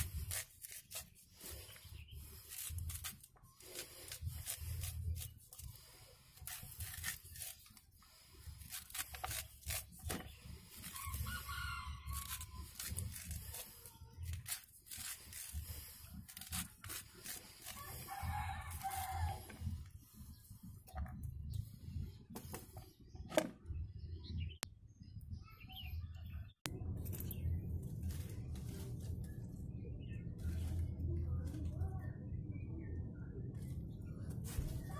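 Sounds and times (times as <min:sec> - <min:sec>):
knife scraping corn cob: 0:00.0 - 0:21.0
rooster crowing: 0:11.0 - 0:12.6.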